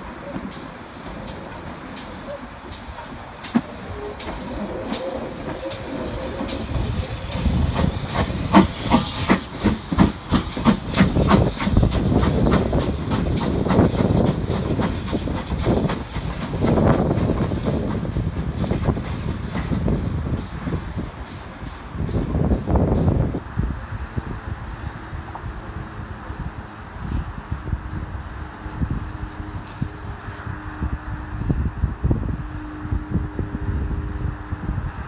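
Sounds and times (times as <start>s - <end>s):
steam hissing: 0.0s - 23.4s
steam locomotive exhaust chuffs: 0.0s - 31.4s.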